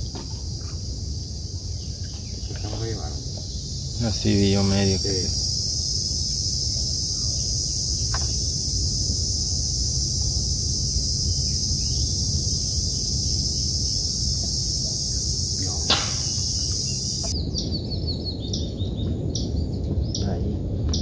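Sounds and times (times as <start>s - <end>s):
steady low rumble: 0.0s - 21.0s
birds chirping: 1.6s - 8.8s, 9.4s - 20.6s
high even hiss: 2.7s - 17.3s
sharp click: 15.8s - 16.5s.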